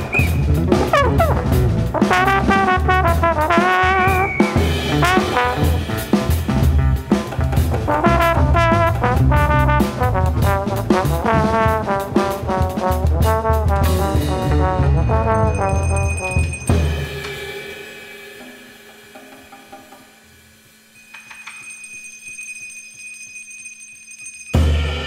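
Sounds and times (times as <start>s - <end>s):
trombone playing fast lines: 0.0s - 17.0s
drum kit: 0.0s - 21.4s, 24.5s - 25.0s
metal percussion ringing: 14.2s - 20.3s, 20.9s - 25.0s
hand percussion: 21.0s - 25.0s.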